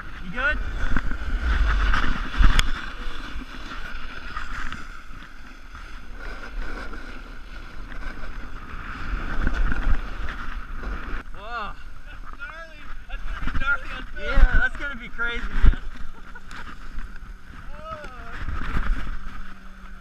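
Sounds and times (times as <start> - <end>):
wind buffeting microphone: 0.0 - 5.3
snowboard scraping over snow: 0.0 - 20.0.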